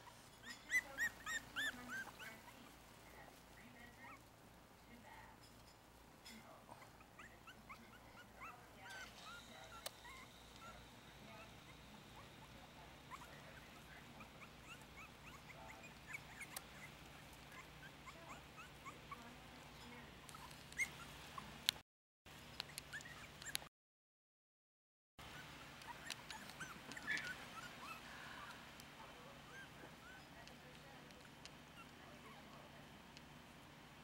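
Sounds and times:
puppies squeaking and whimpering: 0.0 - 2.8, 6.3 - 21.7, 22.4 - 23.7, 25.2 - 32.8.

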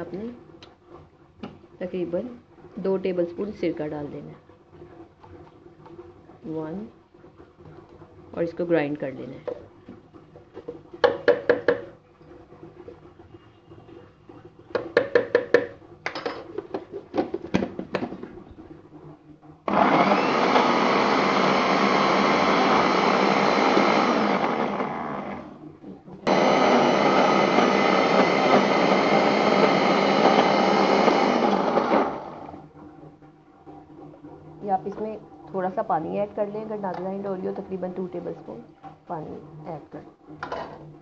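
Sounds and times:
electric mixer grinder running: 19.7 - 32.6.

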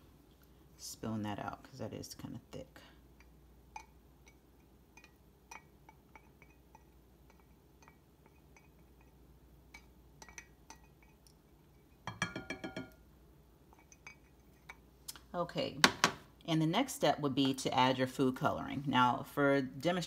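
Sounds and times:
spoon clinking against glass: 12.0 - 13.0.

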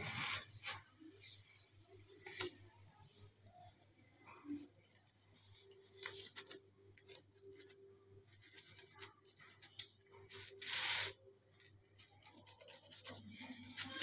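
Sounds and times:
knife scraping a plate: 8.8 - 11.2.

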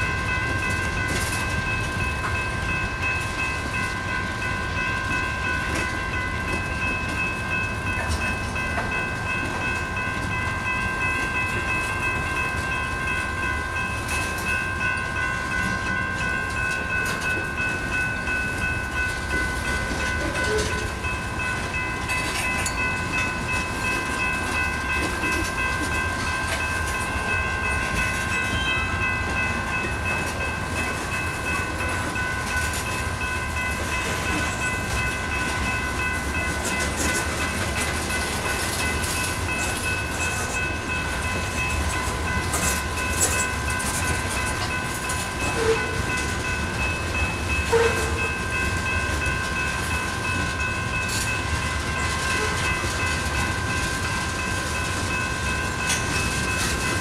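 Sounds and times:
freight train rumbling: 0.0 - 57.0
high-pitched ringing: 0.0 - 57.0.

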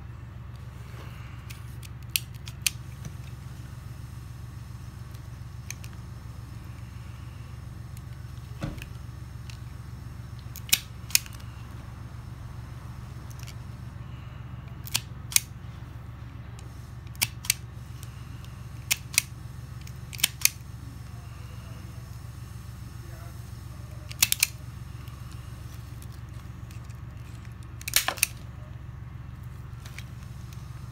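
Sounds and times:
steady low hum: 0.0 - 30.9.

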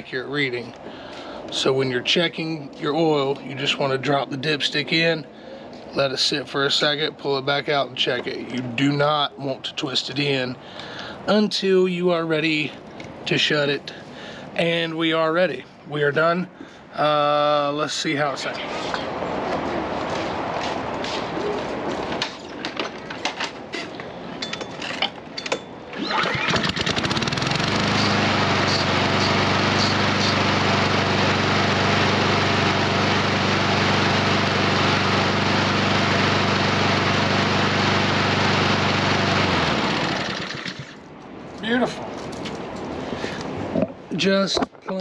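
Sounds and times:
lawn mower engine running: 25.9 - 41.1.

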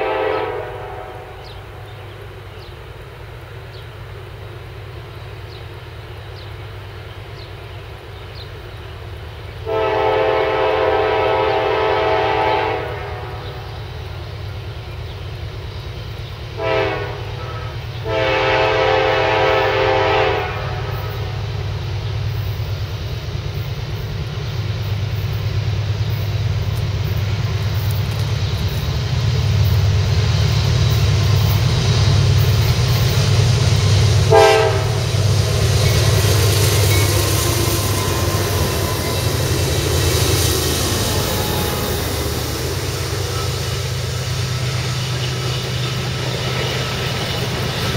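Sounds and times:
locomotive horn blasts: 0.0 - 1.9, 9.6 - 13.8, 16.6 - 21.4, 34.2 - 35.2
diesel engines rumbling: 20.5 - 47.9.

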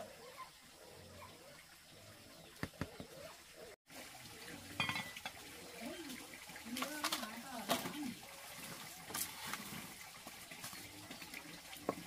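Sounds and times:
metal cookware clinking: 4.8 - 5.4.

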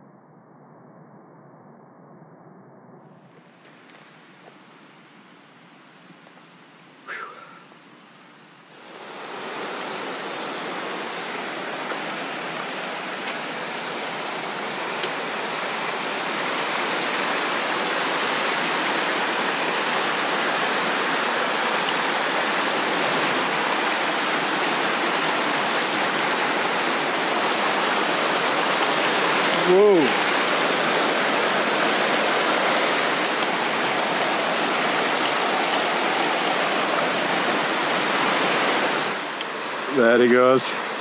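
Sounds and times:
stream rushing over stones: 8.7 - 41.0.

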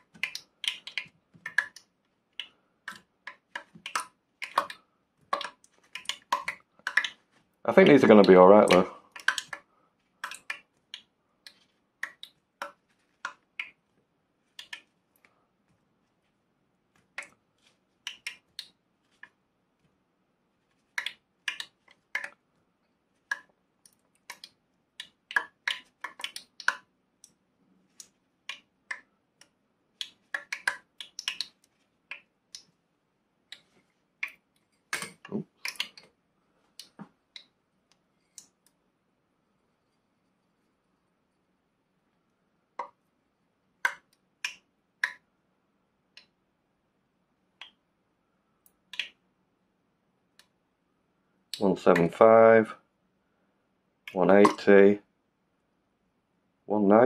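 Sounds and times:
hot oil crackling and popping: 0.0 - 7.2, 7.8 - 11.1, 20.9 - 22.4, 23.3 - 26.9, 30.0 - 32.7, 43.8 - 45.2.

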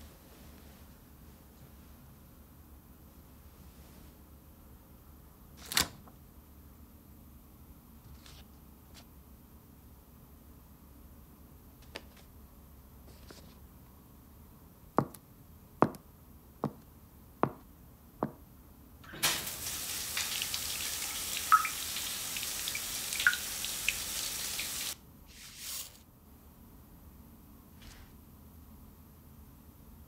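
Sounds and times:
stiletto heel taps: 15.0 - 15.2, 15.8 - 16.0, 17.4 - 18.4
shower water running: 19.1 - 25.9
water drips plopping: 19.2 - 25.0.

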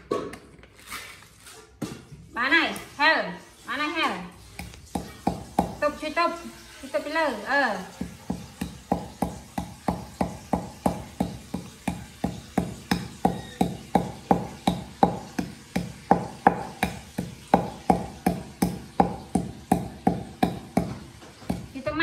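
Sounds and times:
wooden pestle pounding in mortar: 4.5 - 6.1, 7.8 - 22.0.

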